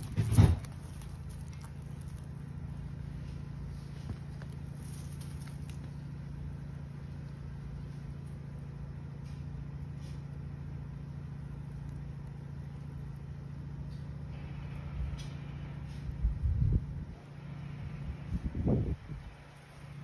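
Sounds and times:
low bumps: 0.0s - 10.4s
engine idling: 0.0s - 20.0s.

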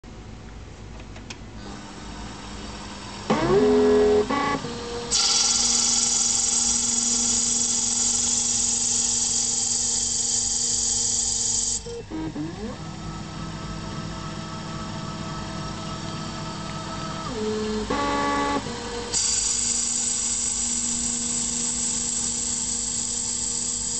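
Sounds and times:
motor whine: 1.6s - 23.9s
lathe tool cutting hiss: 5.0s - 11.9s, 17.5s - 23.9s.

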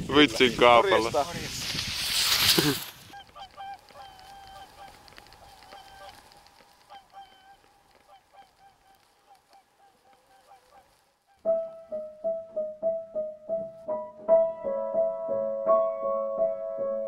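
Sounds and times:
waterfowl calling: 3.1s - 11.6s.

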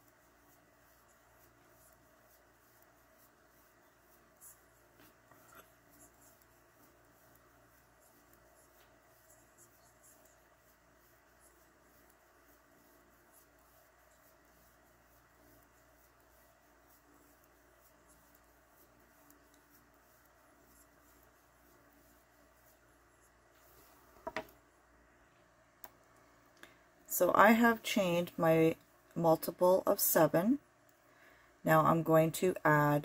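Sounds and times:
crochet hook scratchy ticks: 0.0s - 23.4s
faint room hum: 0.0s - 33.0s.

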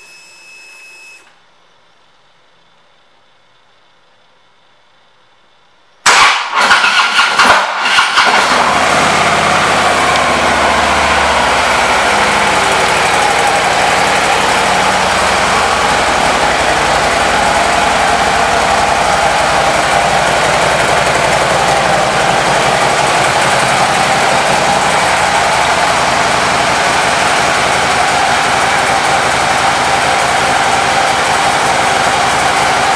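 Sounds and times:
motorcycle engine starting and idling: 6.1s - 32.9s.

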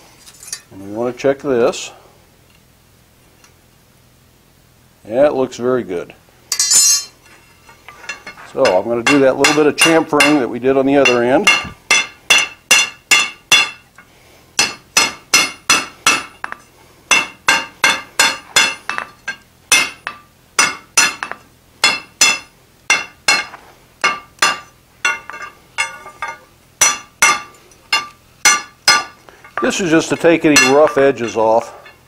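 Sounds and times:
hammer striking hot iron on anvil: 6.5s - 7.2s, 8.0s - 32.0s.

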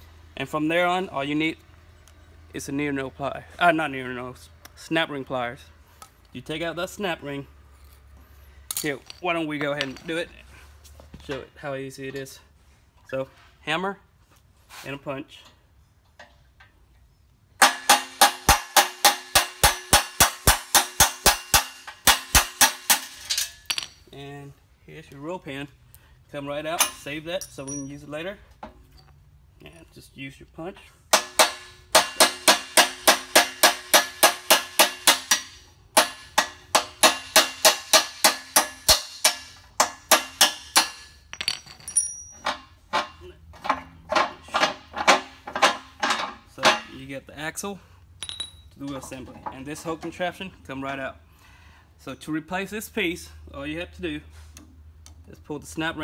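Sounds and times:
hammer striking steel punch: 17.6s - 23.9s, 31.1s - 41.6s.

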